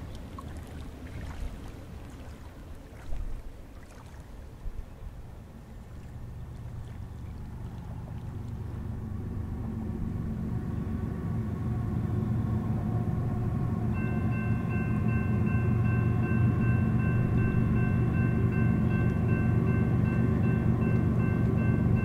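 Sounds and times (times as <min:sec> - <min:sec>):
diesel locomotive rumble: 0:06.2 - 0:22.0
high ringing tone: 0:13.9 - 0:22.0.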